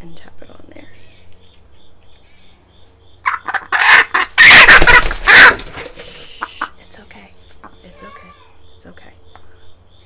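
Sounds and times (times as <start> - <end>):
hen squawking: 3.2 - 5.8.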